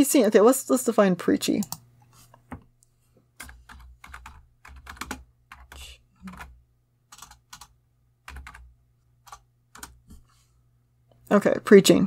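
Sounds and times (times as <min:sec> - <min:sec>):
typing on keyboard: 0:03.4 - 0:10.0.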